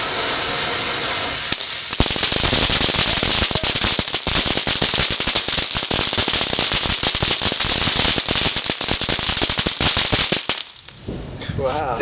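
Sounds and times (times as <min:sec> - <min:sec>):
firework fountain hissing: 0:00.0 - 0:11.0
rapid crackling pops: 0:01.4 - 0:11.0.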